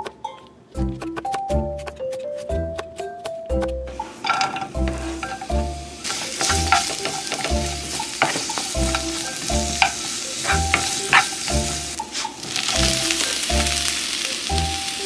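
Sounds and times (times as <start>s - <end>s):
wooden spoon scraping a pan: 3.9s - 12.8s
vegetables sizzling in hot oil: 5.0s - 15.0s.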